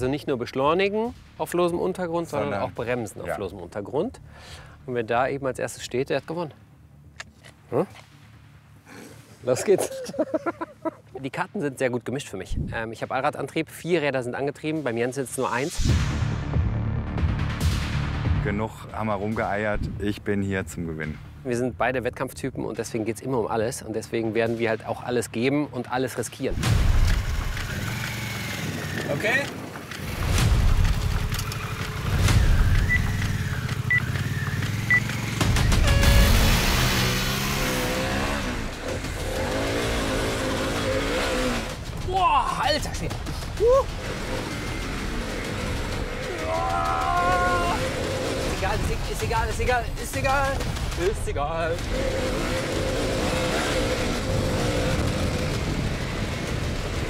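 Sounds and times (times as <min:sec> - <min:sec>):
motorcycle engine running: 0:26.7 - 0:57.0
engine holding a high note: 0:32.2 - 0:38.4
dense rushing noise: 0:34.7 - 0:57.0
short high beeps: 0:34.9 - 0:36.4.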